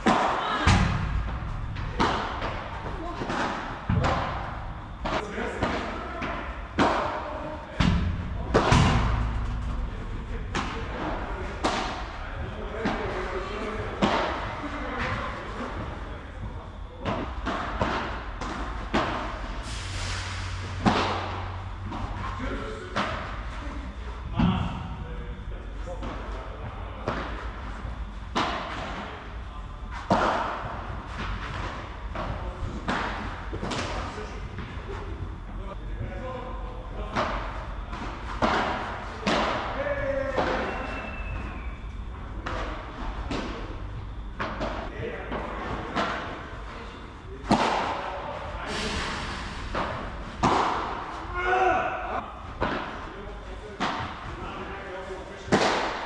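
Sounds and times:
ball bouncing: 0.0 - 7.1, 7.8 - 12.2
rackets striking ball: 0.0 - 16.1, 17.0 - 19.6, 20.6 - 23.6, 27.0 - 35.6, 36.9 - 48.6, 49.5 - 51.4, 52.0 - 54.8, 55.4 - 56.0.

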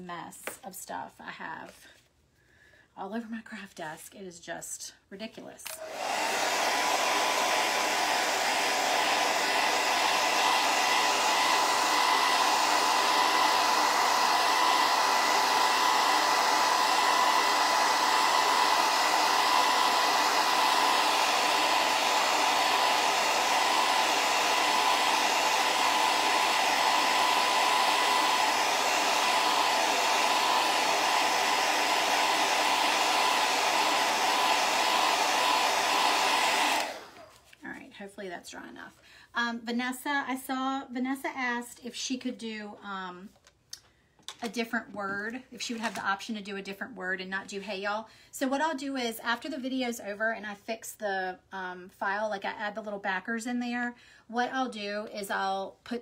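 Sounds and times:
hair dryer running: 5.4 - 37.6, 44.2 - 46.3.

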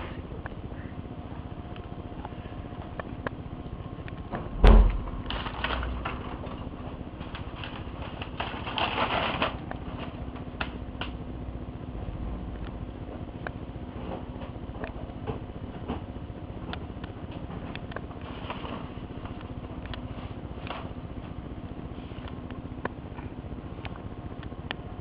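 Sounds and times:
printer humming and clicking: 0.0 - 25.0
paper rustling: 5.2 - 10.7, 18.2 - 19.4.

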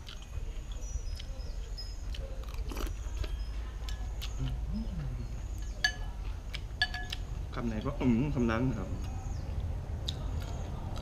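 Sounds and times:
person chewing soup: 0.0 - 7.5, 9.0 - 11.0
steady low rumble: 3.3 - 11.0
metal spoon clinking on bowl: 5.6 - 6.1, 6.8 - 7.2
chopsticks and spoon clicking: 5.6 - 7.3.

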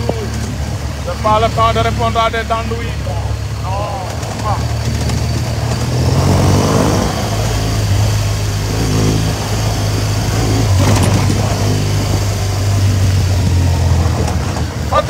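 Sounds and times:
motorcycle engine running: 0.0 - 15.0
wind noise on microphone: 4.2 - 15.0.

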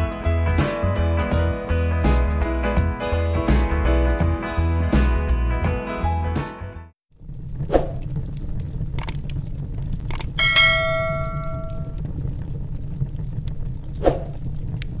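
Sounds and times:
low crackling fire rumble: 7.1 - 15.0
sharp clicks: 7.9 - 9.4, 10.0 - 10.4
notification bell chime: 10.4 - 11.9.

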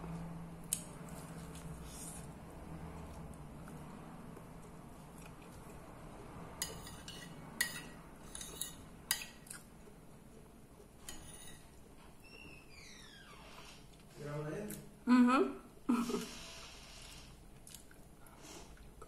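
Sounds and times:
fork clinking and scraping on plate: 6.6 - 9.5, 11.0 - 11.8.

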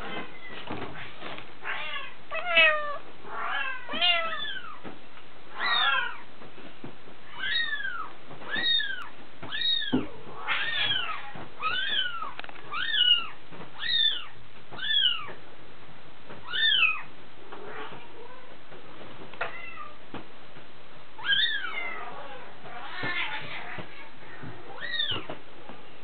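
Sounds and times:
kittens mewing: 1.6 - 4.8.

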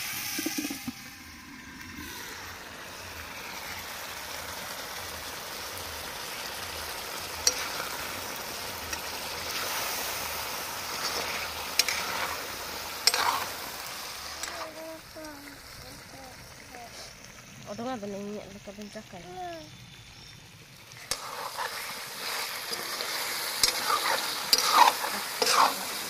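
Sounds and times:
curry sizzling in a pan: 0.0 - 26.0
ladle stirring: 8.9 - 14.8, 21.0 - 26.0.

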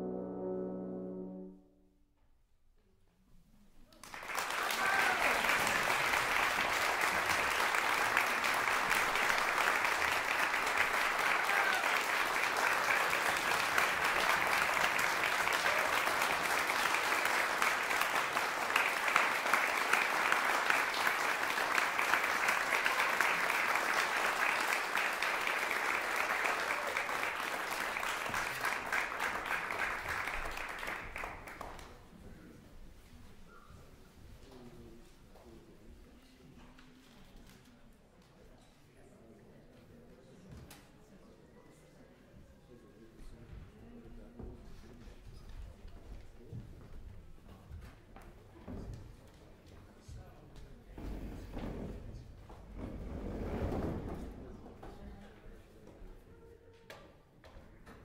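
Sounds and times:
horn ensemble chord: 0.0 - 2.0
audience applauding: 4.0 - 32.1.

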